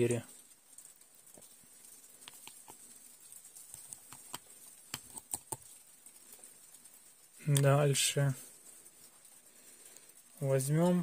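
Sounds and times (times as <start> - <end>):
light clicks and taps: 0.8 - 7.8.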